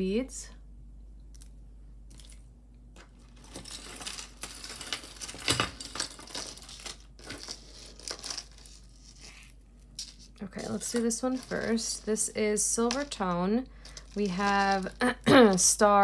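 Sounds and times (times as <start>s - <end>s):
metal chain clinking on table: 3.4s - 9.2s.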